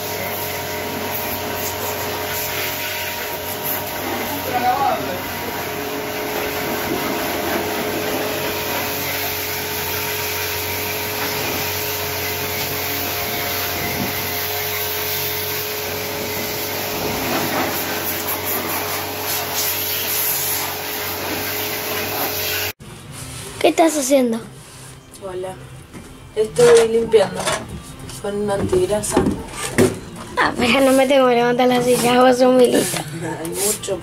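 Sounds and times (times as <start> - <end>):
pressure washer motor hum: 0.0 - 22.8
water jet spraying metal: 0.0 - 22.8.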